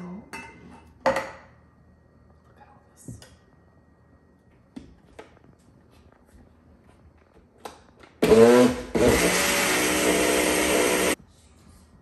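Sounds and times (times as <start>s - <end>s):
blender motor whining: 8.2s - 11.2s.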